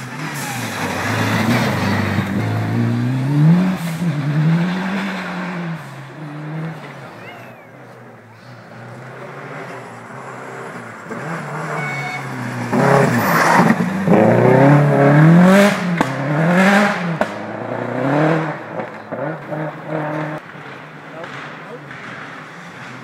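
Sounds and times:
rally car engine revving: 0.0 - 23.0
sharp cracks from car: 16.8 - 17.6, 18.7 - 23.0.

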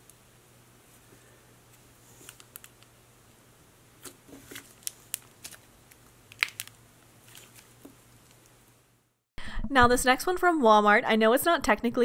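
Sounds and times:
slime clicking and crackling: 4.8 - 6.8.

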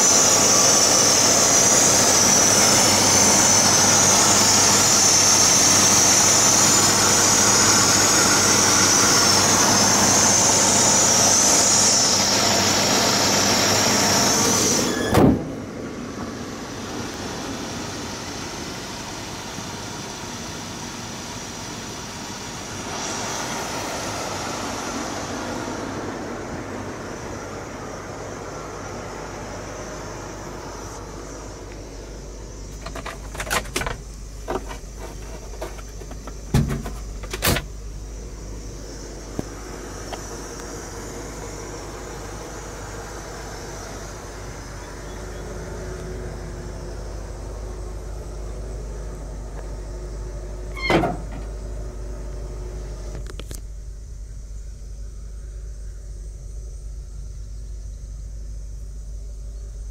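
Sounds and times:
car engine idling: 0.0 - 59.9
high steady hiss: 0.0 - 59.9
thump: 15.1 - 15.5, 35.6 - 37.7, 50.8 - 51.5.

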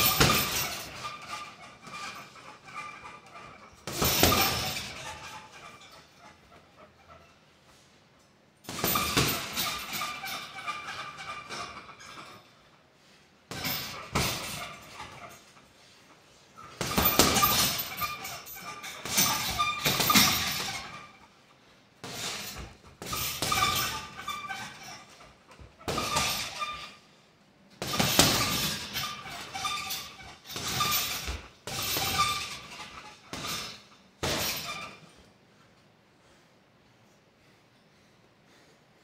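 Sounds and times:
punches hitting a heavy bag: 0.0 - 1.2, 3.8 - 5.0, 16.7 - 18.2, 27.8 - 29.5.

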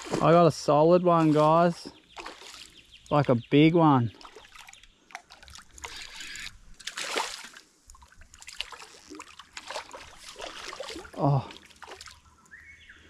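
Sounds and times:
fish splashing in water: 0.0 - 0.4, 2.2 - 2.8, 4.1 - 12.3.

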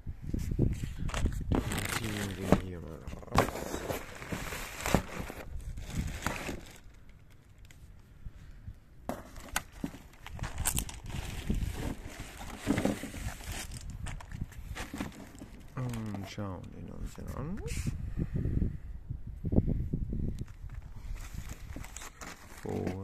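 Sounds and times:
plastic wrapping rustling: 1.6 - 2.8, 3.5 - 7.4, 9.3 - 16.4, 21.1 - 23.0.

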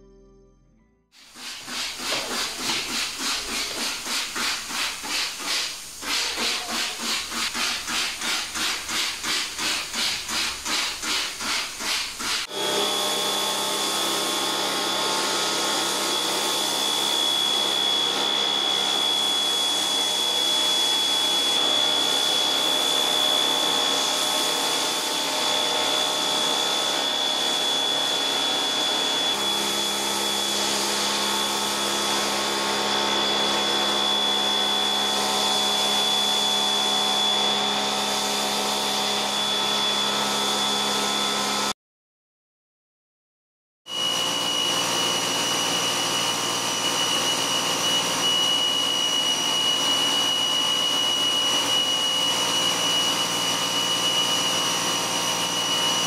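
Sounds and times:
hiss of spray: 1.2 - 12.5
pressure washer whine: 1.2 - 41.7, 43.9 - 56.0.

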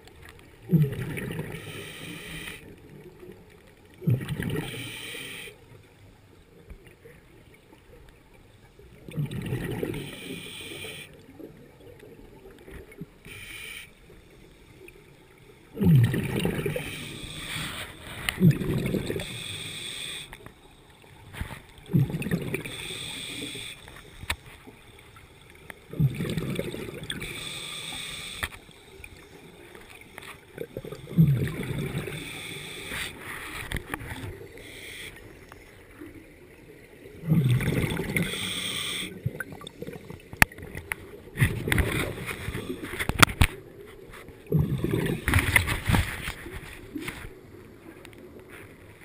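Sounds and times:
exhaled air bubbling: 0.0 - 5.0, 8.8 - 13.2, 14.9 - 47.9
regulator hiss on inhalation: 1.5 - 2.7, 4.6 - 5.6, 9.9 - 11.2, 13.3 - 14.8, 16.7 - 18.4, 19.1 - 20.5, 22.6 - 24.5, 27.2 - 28.8, 32.0 - 33.7, 34.4 - 35.7, 38.1 - 39.2.

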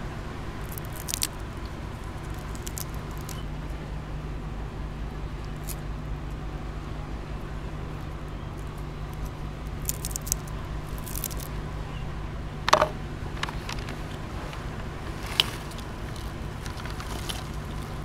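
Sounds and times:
steady low hum: 0.0 - 18.0
snack strip crackling: 0.6 - 3.5, 5.4 - 5.9, 8.5 - 11.6, 12.7 - 18.0.

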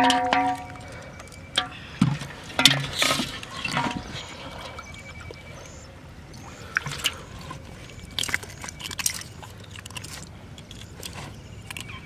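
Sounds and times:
fish knocking against metal basin: 0.0 - 0.8.

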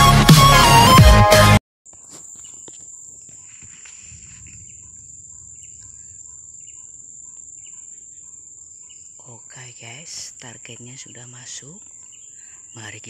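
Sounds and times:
electronic music: 0.0 - 1.6
faint insect chirps: 1.9 - 13.0.

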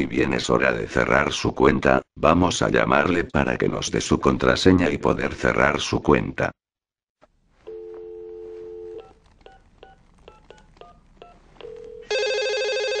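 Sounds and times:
telephone dial tone: 7.6 - 13.0
buzzy telephone ringing tone: 7.7 - 13.0.

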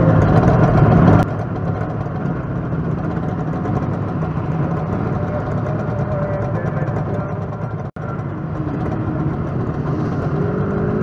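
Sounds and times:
motorcycle engines idling: 0.0 - 11.0.

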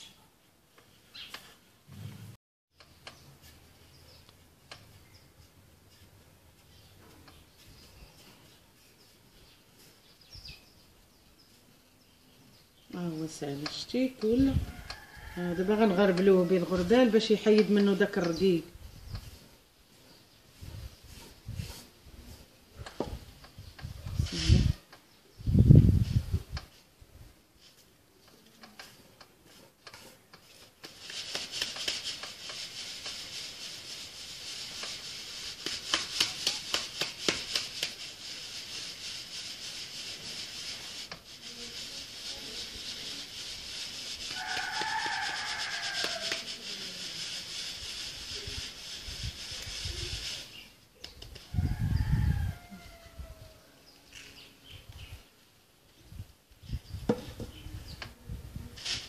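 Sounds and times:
grains hissing through sieve: 13.0 - 23.4, 24.2 - 24.9, 28.6 - 50.9, 58.8 - 59.0.

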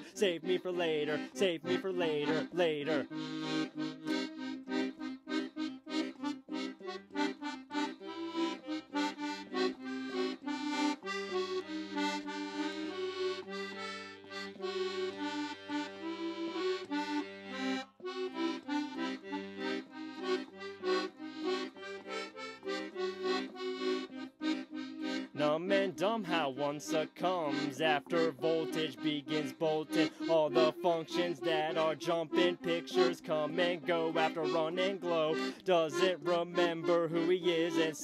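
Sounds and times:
accordion playing: 0.0 - 38.0.

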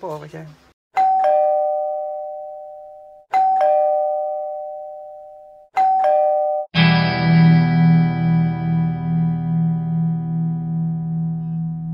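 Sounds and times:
two-note doorbell chime: 1.0 - 7.0.

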